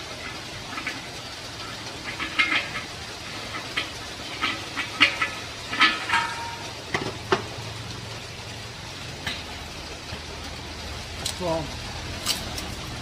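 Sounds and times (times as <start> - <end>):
metal clinks and knocks: 3.5 - 7.4.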